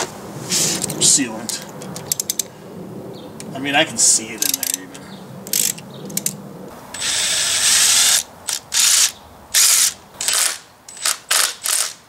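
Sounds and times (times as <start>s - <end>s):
hand ratchet clicking: 2.0s - 2.5s, 4.4s - 4.8s, 5.5s - 6.3s, 7.0s - 12.0s.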